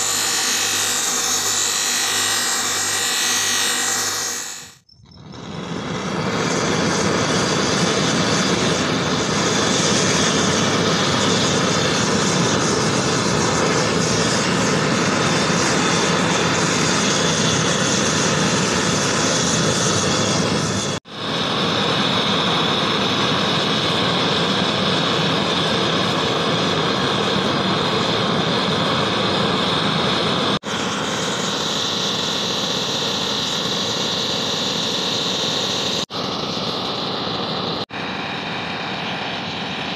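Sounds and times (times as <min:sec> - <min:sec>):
blowtorch flame hissing: 0:00.0 - 0:04.8.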